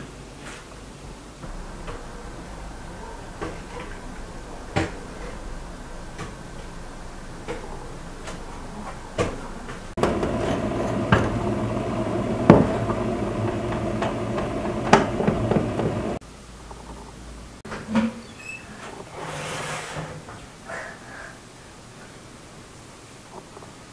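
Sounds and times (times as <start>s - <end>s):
steady hum: 1.4s - 16.2s.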